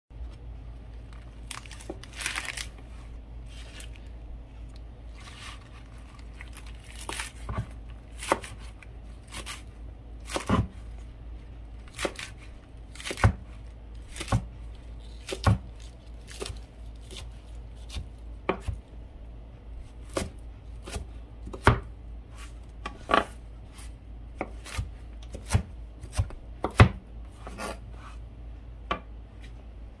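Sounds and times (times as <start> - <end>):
leaf rustling: 1.4 - 4.1
knife chopping on cutting board: 7.0 - 8.7, 10.2 - 10.8, 11.9 - 12.4, 13.0 - 14.5, 15.2 - 18.8, 20.1 - 28.2.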